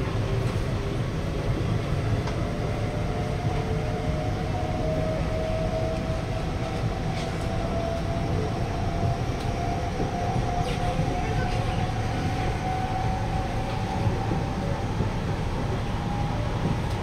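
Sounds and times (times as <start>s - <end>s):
train wheels rumbling on track: 0.0s - 17.0s.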